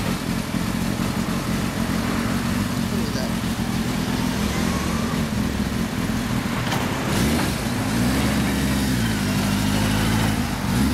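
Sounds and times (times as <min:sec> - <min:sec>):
motorcycle engine idling: 0:00.0 - 0:06.6.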